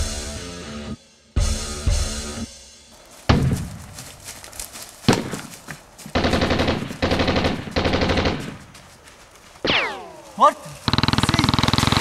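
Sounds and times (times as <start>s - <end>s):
single gunshots: 5.1s - 5.5s
automatic gunfire bursts: 6.2s - 8.6s, 10.9s - 12.0s.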